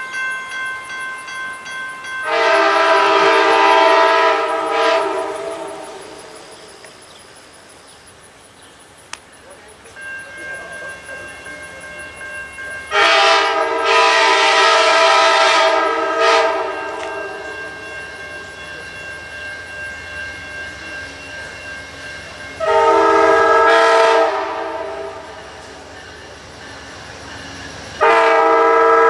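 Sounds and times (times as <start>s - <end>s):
locomotive air horn blasts: 2.2s - 6.1s, 12.9s - 17.5s, 22.6s - 25.4s, 28.0s - 29.0s.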